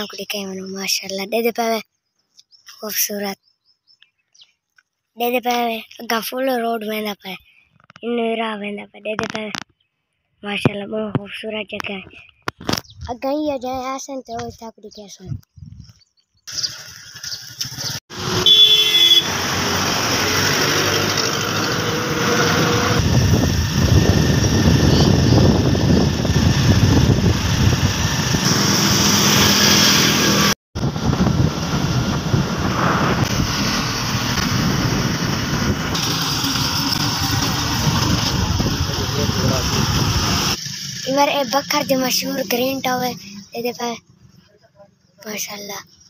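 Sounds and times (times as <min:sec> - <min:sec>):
wind rushing over microphone: 0:15.3 - 0:16.0, 0:21.7 - 0:40.6
road traffic: 0:16.3 - 0:46.0.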